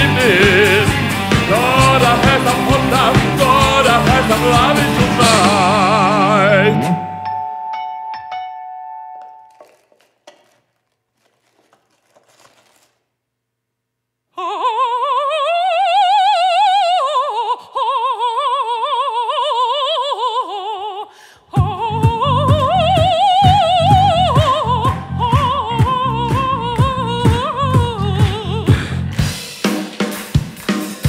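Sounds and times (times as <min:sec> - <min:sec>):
heavy rhythmic beat: 0:00.0 - 0:06.2, 0:21.6 - 0:31.0
operatic voice singing: 0:00.0 - 0:07.2, 0:14.4 - 0:29.1.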